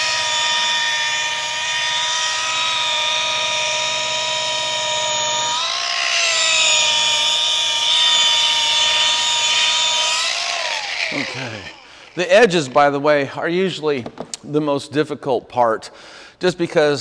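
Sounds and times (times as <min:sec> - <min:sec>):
electric polisher whining: 0:00.0 - 0:13.0.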